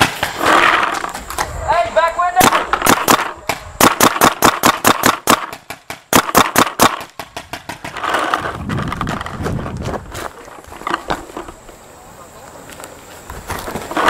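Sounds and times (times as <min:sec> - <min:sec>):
paintball marker firing: 0:00.0 - 0:01.5, 0:02.4 - 0:08.4
scuffing and rustling on grass: 0:08.1 - 0:14.0.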